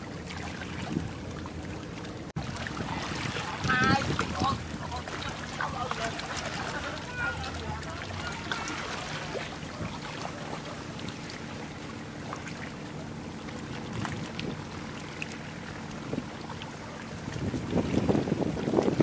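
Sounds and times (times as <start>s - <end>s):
wind buffeting microphone: 0.0s - 1.6s, 2.3s - 10.1s, 13.7s - 19.0s
ship engine droning: 0.0s - 19.0s.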